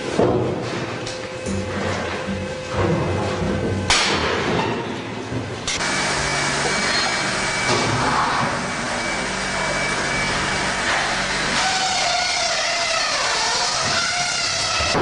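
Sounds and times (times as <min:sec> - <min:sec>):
machinery running: 0:05.2 - 0:15.0.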